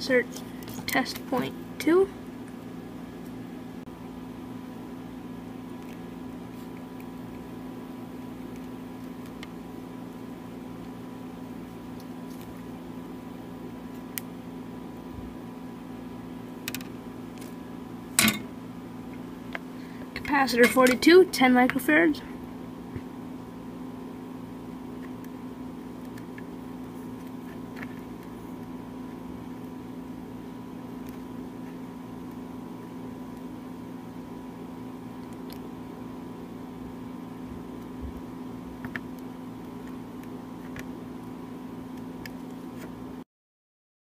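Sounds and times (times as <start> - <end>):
low electrical hum: 0.0 - 43.2.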